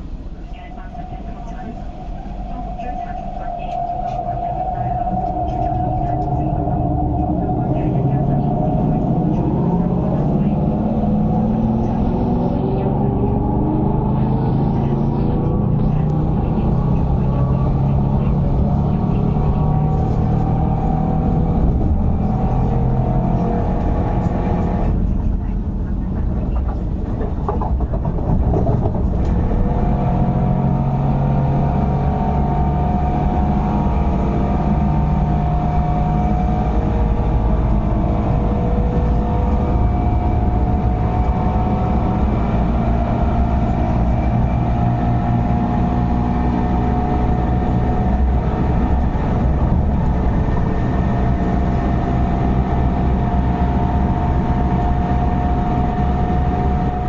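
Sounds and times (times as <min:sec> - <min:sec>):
train drone with whining tones: 0:00.0 - 0:57.0
wheel and rail rumble: 0:00.0 - 0:57.0.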